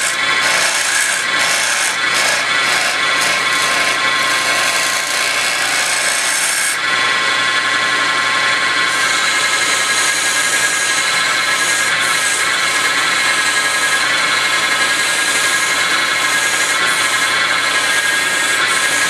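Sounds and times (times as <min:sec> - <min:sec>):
sandpaper hissing on spinning wood: 0:00.0 - 0:06.8, 0:08.9 - 0:19.0
turning tool scraping wood: 0:00.0 - 0:06.8, 0:08.9 - 0:19.0
wood lathe motor whine: 0:00.0 - 0:19.0.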